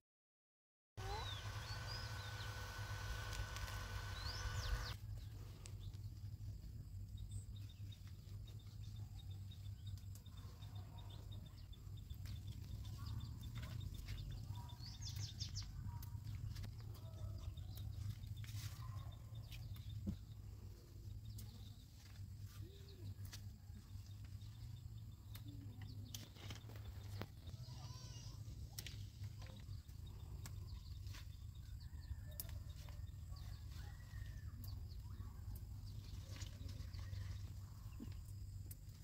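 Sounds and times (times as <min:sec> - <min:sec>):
handheld fan whining: 0:01.0 - 0:05.0
bird chirps: 0:01.0 - 0:06.0.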